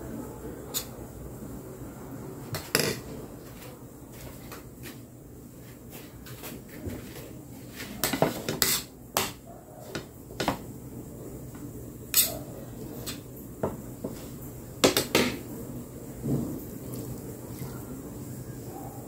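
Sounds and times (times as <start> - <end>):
metal spoon scraping plates: 7.7 - 8.9.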